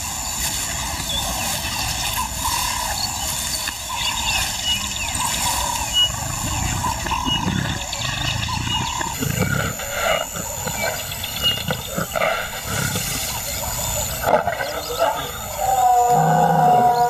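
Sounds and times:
lion growling and roaring: 5.1 - 17.0.

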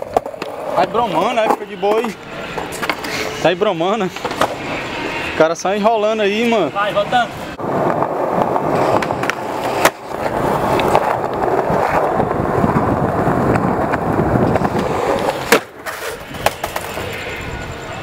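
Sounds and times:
skateboard clicks: 0.0 - 3.2, 7.8 - 17.3
skateboard wheels on concrete: 0.0 - 18.0.

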